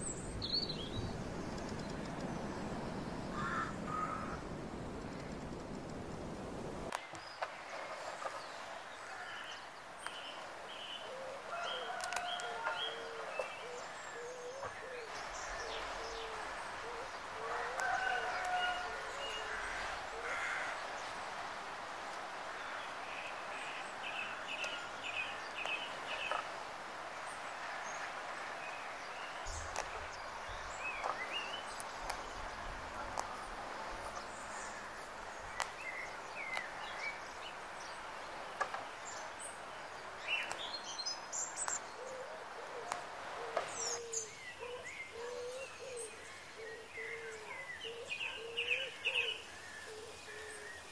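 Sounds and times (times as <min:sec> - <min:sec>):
birds chirping: 0:00.0 - 0:06.3, 0:06.9 - 0:50.9
steady background hiss: 0:00.0 - 0:50.9
herb stems snapping: 0:11.8 - 0:12.7, 0:17.5 - 0:18.8, 0:25.5 - 0:26.5, 0:29.5 - 0:30.2, 0:30.9 - 0:34.3, 0:35.4 - 0:37.1, 0:40.4 - 0:40.7, 0:41.6 - 0:41.9.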